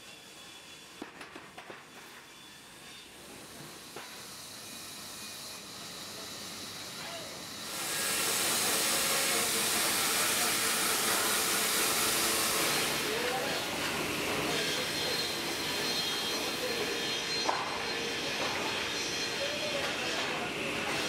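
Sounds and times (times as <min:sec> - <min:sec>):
low mill machinery: 0:02.8 - 0:21.0
band saw blade cutting log: 0:07.0 - 0:21.0.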